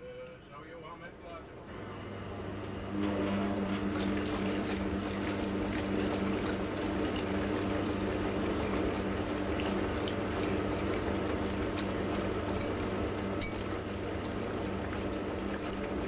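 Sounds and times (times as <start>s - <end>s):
motor hum: 3.6s - 16.0s
water sloshing in flask: 13.4s - 13.8s, 15.5s - 15.9s.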